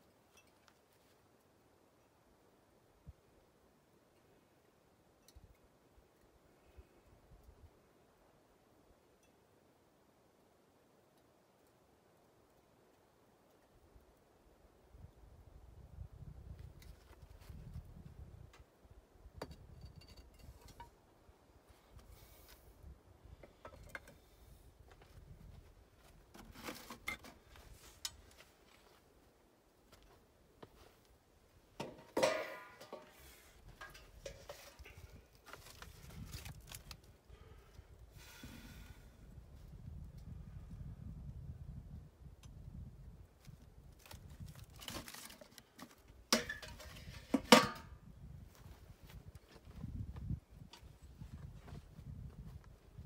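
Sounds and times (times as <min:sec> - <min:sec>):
metal lid clanking on bin: 0:31.8 - 0:33.1
rustling and crackling: 0:31.8 - 0:37.2, 0:43.4 - 0:47.5.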